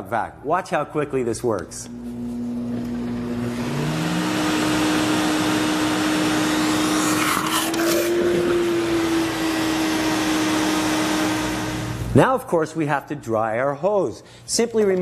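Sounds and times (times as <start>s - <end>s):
vacuum cleaner motor whine: 1.9s - 12.1s.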